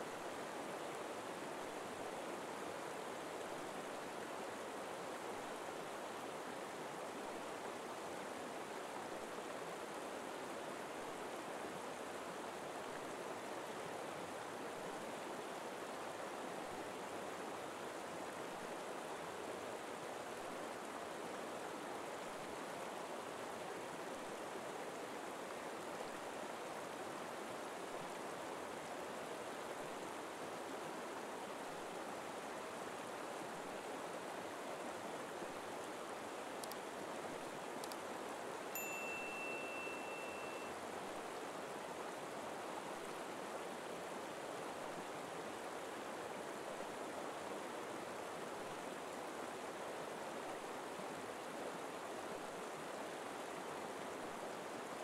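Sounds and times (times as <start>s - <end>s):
river flowing: 0.0s - 55.0s.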